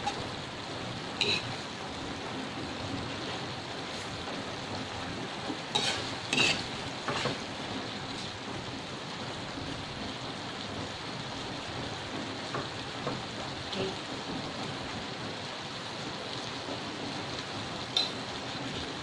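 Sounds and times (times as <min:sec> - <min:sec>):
steady hiss: 0:00.0 - 0:19.0
metal utensil scraping a wok: 0:01.2 - 0:01.6, 0:05.6 - 0:07.5, 0:17.9 - 0:18.3.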